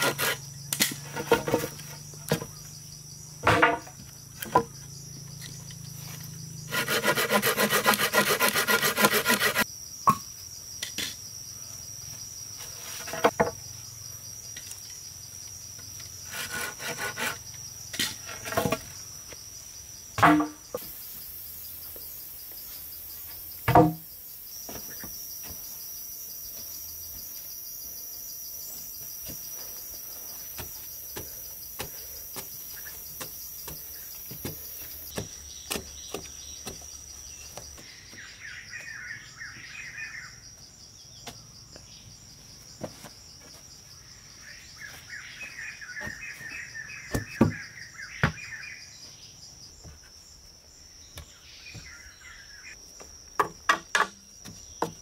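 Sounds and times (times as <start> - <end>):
hoe chopping earth: 0.0 - 2.6, 30.5 - 36.9
insects droning: 0.0 - 55.0
birds chirping: 29.4 - 40.4, 44.1 - 49.4, 50.8 - 52.8.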